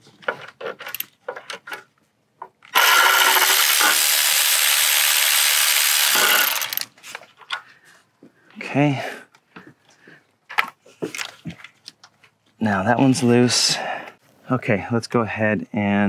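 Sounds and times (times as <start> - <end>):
electric ratchet whirring: 2.7 - 6.9.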